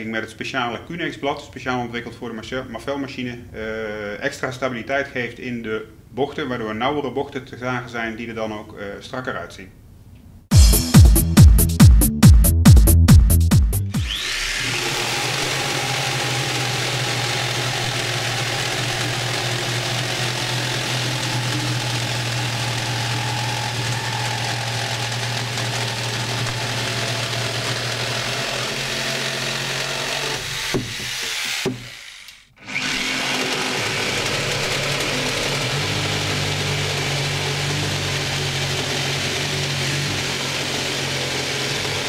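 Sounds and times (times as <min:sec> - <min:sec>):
jigsaws cutting wood: 0:14.0 - 0:42.0.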